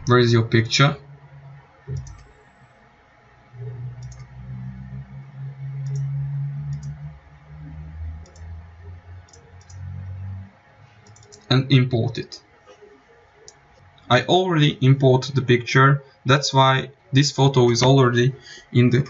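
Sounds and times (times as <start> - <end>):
low hum shifting in pitch: 0.0 - 19.0
computer mouse clicks: 1.9 - 2.4, 3.6 - 5.0, 5.8 - 6.1, 6.7 - 7.0, 8.2 - 8.5, 9.2 - 10.1, 11.0 - 11.5.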